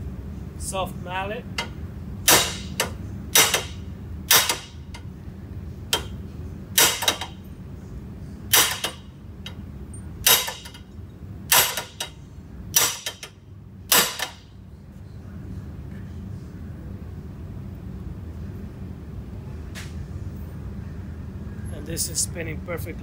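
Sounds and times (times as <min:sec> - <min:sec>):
mallet striking metal shaft: 0:02.3 - 0:04.8, 0:06.8 - 0:07.3, 0:13.9 - 0:14.4.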